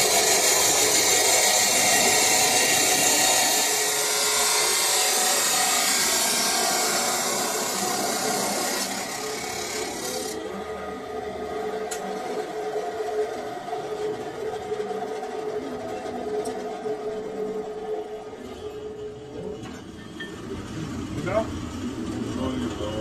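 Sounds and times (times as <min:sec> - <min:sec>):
cut-off saw grinding steel: 0:00.0 - 0:10.6.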